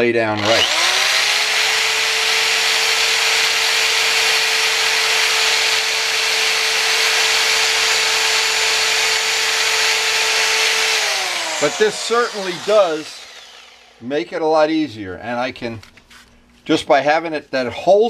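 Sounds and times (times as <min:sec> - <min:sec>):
rotary tool motor whine: 0:00.4 - 0:14.0.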